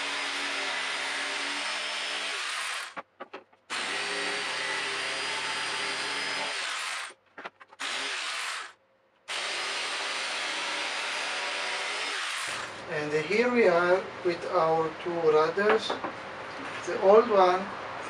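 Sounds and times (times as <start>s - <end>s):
electric jigsaw cutting plywood: 0.0s - 3.0s, 3.7s - 7.2s, 7.8s - 8.7s, 9.3s - 12.8s.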